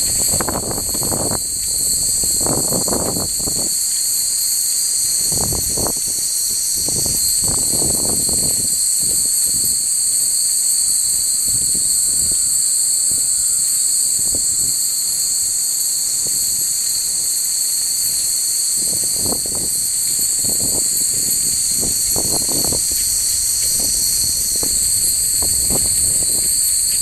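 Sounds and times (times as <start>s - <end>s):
wind rumbling on microphone: 0.0s - 4.0s, 5.0s - 9.8s, 11.1s - 13.4s, 18.8s - 27.0s
shrill insect chorus: 0.0s - 27.0s.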